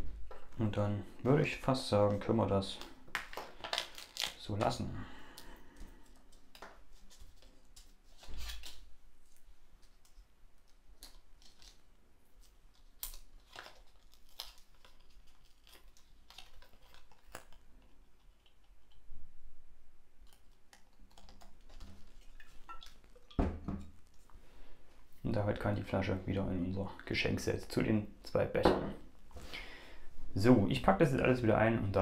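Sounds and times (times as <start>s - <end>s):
paper and card rustling: 5.7s - 19.0s.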